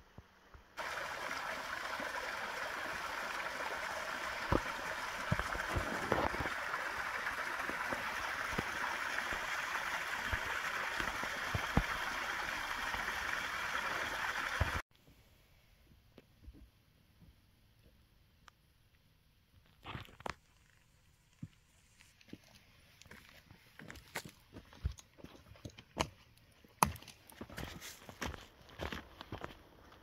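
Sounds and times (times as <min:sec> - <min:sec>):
stream cascading over rocks: 0:00.8 - 0:14.8.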